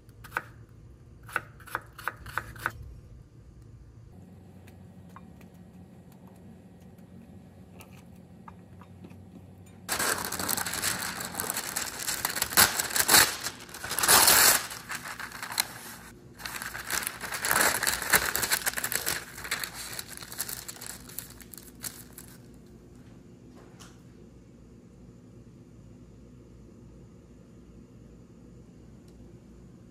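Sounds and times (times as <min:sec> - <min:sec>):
parchment paper crinkling: 0:09.9 - 0:22.6.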